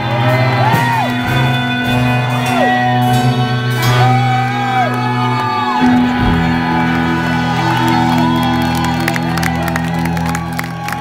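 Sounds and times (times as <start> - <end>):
crowd whooping and cheering: 0.0 - 11.0
electric guitar chord ringing: 0.0 - 11.0
people clapping: 4.4 - 11.0.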